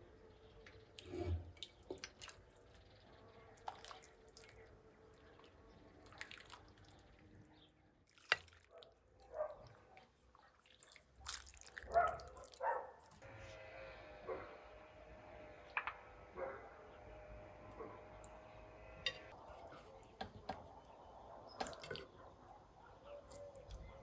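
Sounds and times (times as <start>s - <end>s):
broth splashing and dripping: 3.6s - 7.3s, 10.3s - 12.7s.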